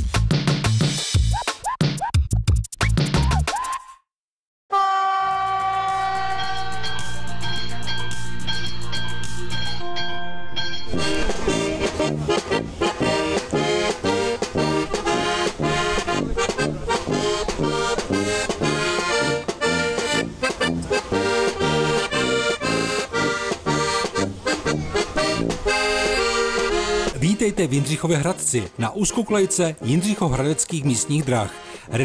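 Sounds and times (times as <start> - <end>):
accordion: 10.9 - 32.0
brass horns: 11.0 - 32.0.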